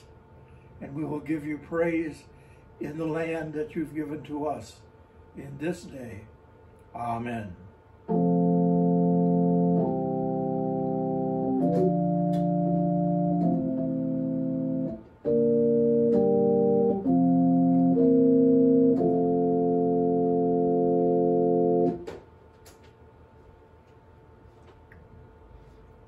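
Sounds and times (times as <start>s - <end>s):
organ playing sustained chords: 8.1s - 22.1s.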